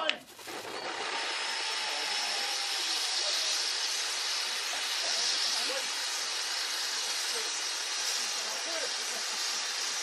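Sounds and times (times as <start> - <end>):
spark fountains hissing: 0.0 - 10.0.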